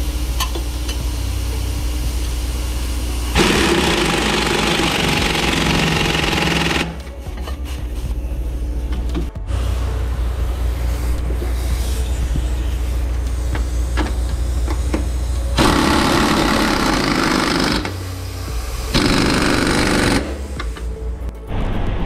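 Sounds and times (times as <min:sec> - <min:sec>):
steady low hum: 0:00.0 - 0:22.0
impact wrench hammering: 0:03.4 - 0:07.0, 0:15.6 - 0:18.0, 0:18.9 - 0:20.8.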